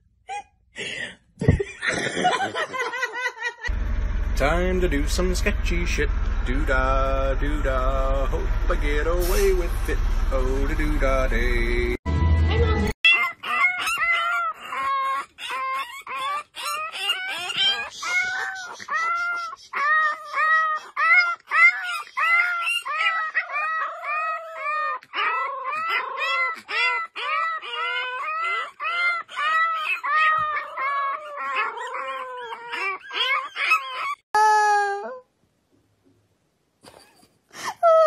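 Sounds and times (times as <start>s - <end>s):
puppies yapping: 13.1s - 34.3s.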